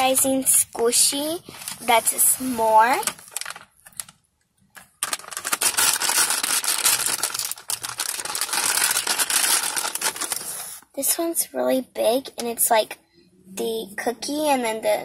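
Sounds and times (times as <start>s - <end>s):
plastic packaging crackling: 0.0s - 10.8s.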